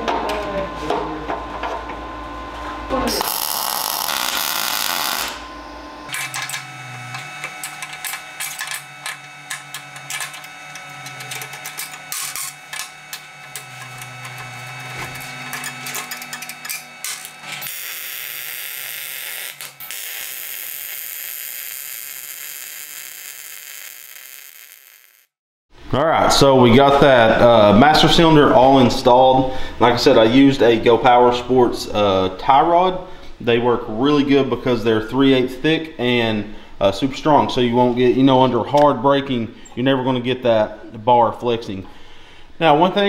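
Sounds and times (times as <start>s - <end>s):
low electrical hum: 0.0s - 24.6s, 25.8s - 43.0s
welder arc crackling: 3.1s - 5.4s, 6.1s - 25.4s
welder hiss: 17.6s - 25.3s.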